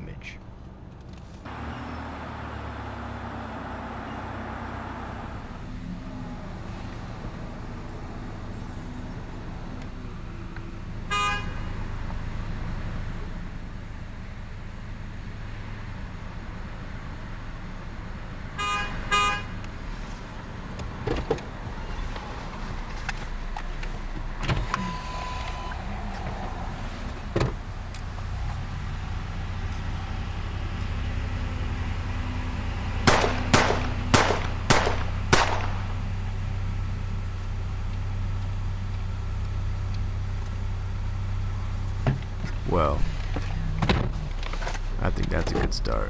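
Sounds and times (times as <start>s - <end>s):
short beeps: 24.8s - 25.8s
sharp bangs: 33.1s - 36.0s.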